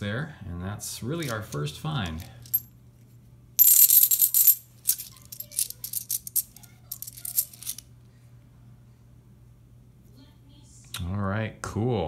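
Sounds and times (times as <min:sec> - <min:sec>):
coins clicking sliding off stack: 0:03.6 - 0:07.8
coins jingling: 0:03.6 - 0:07.8.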